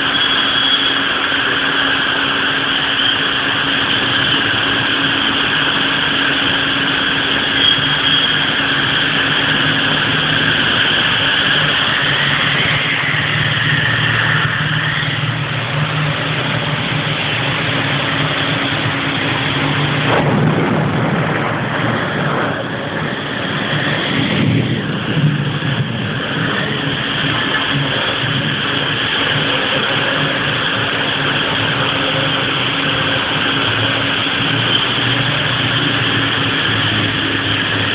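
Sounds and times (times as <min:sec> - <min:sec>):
vehicle engines humming: 0:00.0 - 0:37.9
heavy rain falling: 0:08.4 - 0:37.9.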